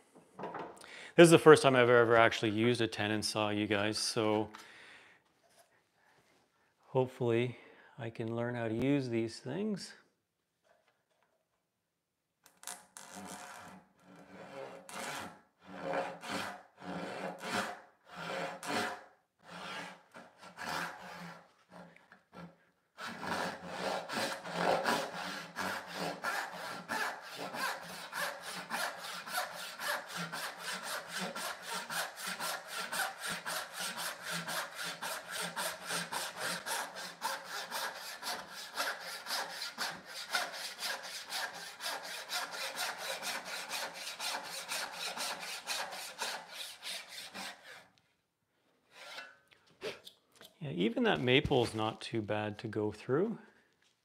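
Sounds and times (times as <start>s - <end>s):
hand saw cutting wood: 13.0s - 48.0s, 48.9s - 50.0s.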